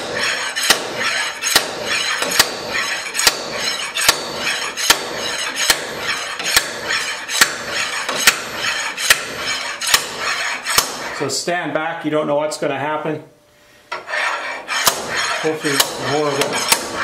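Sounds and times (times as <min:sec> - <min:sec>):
slide hammer metal strikes: 0:00.0 - 0:11.2, 0:14.7 - 0:17.0
slide hammer scraping along shaft: 0:00.0 - 0:11.4, 0:13.9 - 0:17.0.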